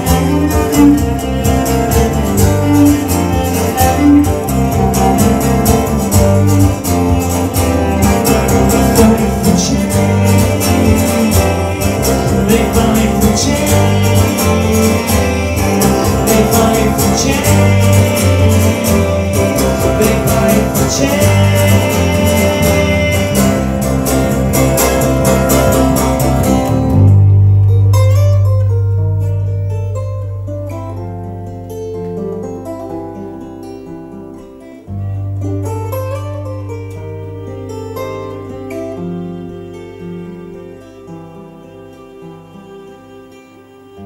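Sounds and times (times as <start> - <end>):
bowed cello: 0.0 - 30.9, 37.0 - 44.0
bass guitar: 0.0 - 41.1
acoustic guitar strumming: 0.0 - 44.0.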